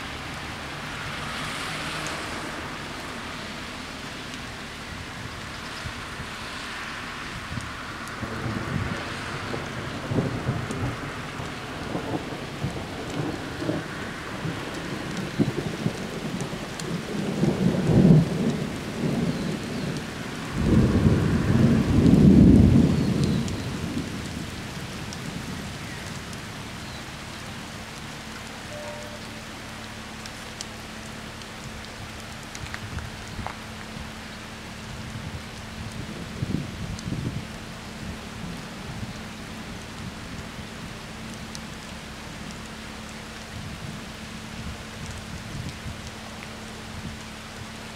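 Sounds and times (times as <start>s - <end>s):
rain hissing: 0.0s - 47.9s
thunder rumbling: 7.2s - 30.2s, 31.6s - 46.3s.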